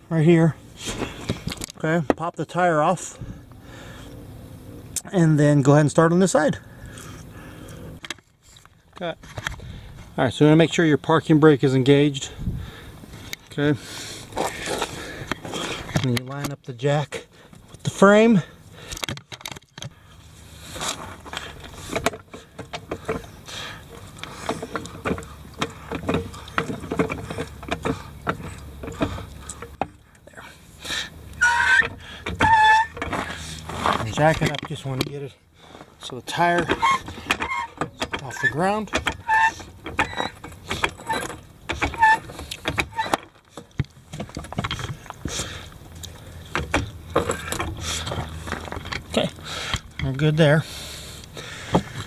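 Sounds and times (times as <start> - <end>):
floor jack clicking and knocking: 24.0 - 30.0, 36.4 - 45.4
short squeaks: 31.0 - 34.2, 36.5 - 43.4
jack handle clicks and knocks: 36.6 - 42.0.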